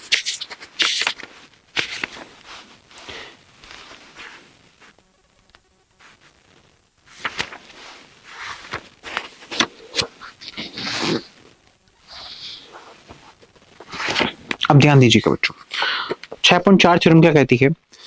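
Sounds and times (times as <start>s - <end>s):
paper pages rustling: 0.0s - 5.0s, 7.0s - 11.3s, 12.1s - 14.6s, 16.0s - 16.6s.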